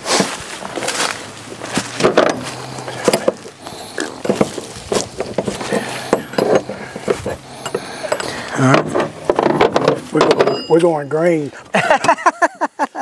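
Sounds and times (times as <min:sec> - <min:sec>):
metallic tool clinks: 0:10.4 - 0:11.0.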